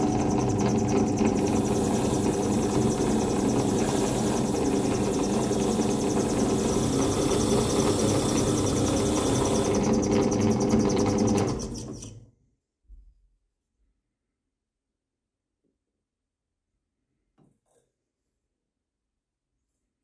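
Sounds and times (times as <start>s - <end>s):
power tool hum: 0.0s - 12.1s.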